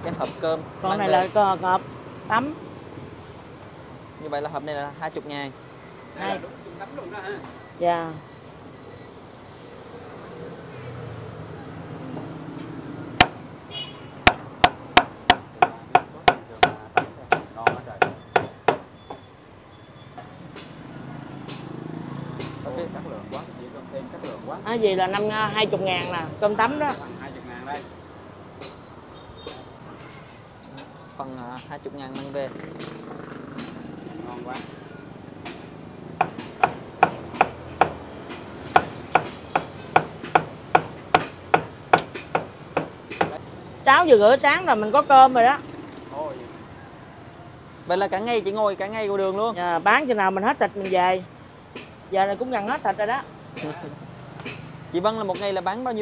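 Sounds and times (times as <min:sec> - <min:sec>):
knife chopping on wooden board: 0:36.2 - 0:43.4.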